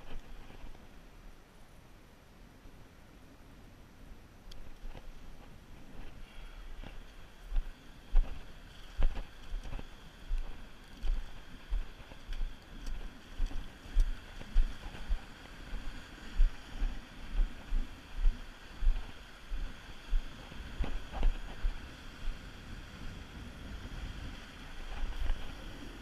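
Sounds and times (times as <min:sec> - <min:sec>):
wind buffeting microphone: 0:04.5 - 0:26.0
sea surf on rocks: 0:12.5 - 0:26.0.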